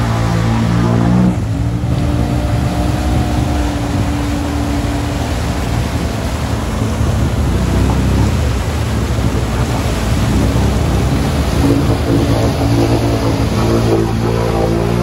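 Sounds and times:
atv engine running hard: 0:00.0 - 0:15.0
mud splattering: 0:00.0 - 0:15.0.

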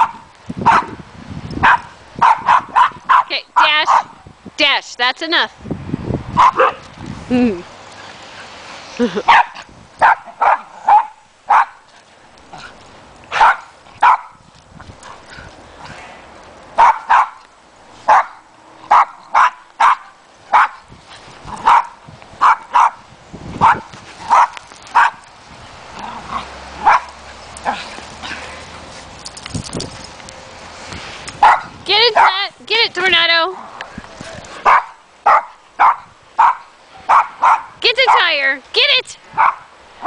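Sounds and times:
dog barking: 0:00.0 - 0:01.0, 0:01.6 - 0:04.2, 0:06.4 - 0:06.8, 0:09.3 - 0:11.8, 0:13.3 - 0:14.4, 0:16.8 - 0:17.4, 0:18.1 - 0:20.8, 0:21.6 - 0:23.0, 0:23.6 - 0:25.2, 0:26.8 - 0:27.2, 0:31.4 - 0:32.4, 0:34.6 - 0:38.3, 0:39.4 - 0:39.7.

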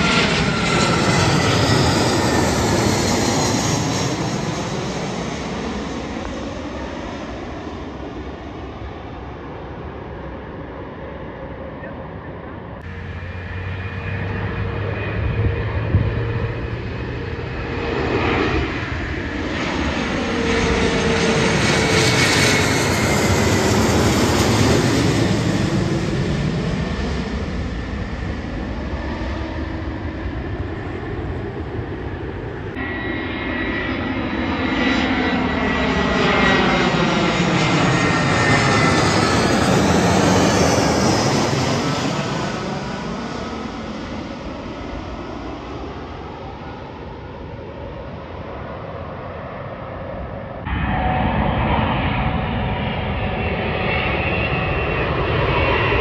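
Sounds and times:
jet airliner passing overhead: 0:00.0 - 0:56.0.

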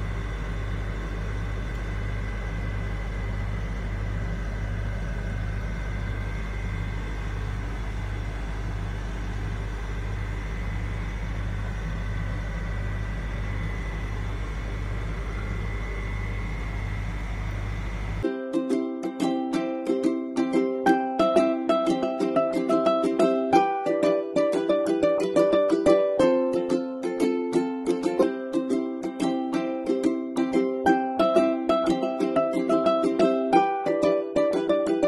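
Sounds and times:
low machine hum with throb: 0:00.0 - 0:18.3
faint high whine: 0:00.0 - 0:18.4.

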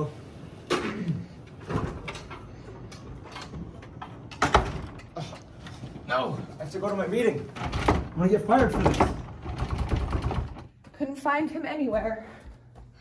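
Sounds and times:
door banging shut: 0:04.3 - 0:05.2, 0:07.6 - 0:10.7
door knocking and rattling: 0:07.5 - 0:10.8.

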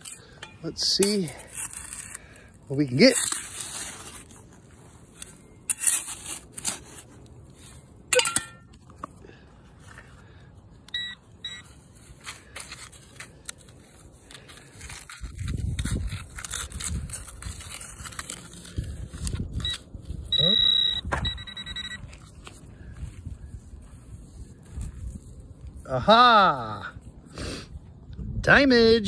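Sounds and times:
digging tool scraping dirt: 0:00.0 - 0:08.7, 0:11.7 - 0:20.6.

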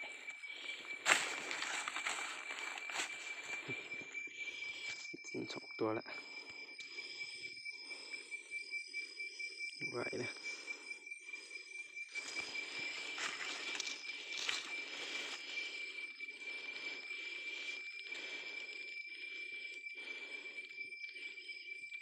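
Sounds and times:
insects high-pitched whine: 0:00.0 - 0:22.0
pulsing insect chorus: 0:00.0 - 0:22.0
dry leaves rustling: 0:00.7 - 0:03.7.

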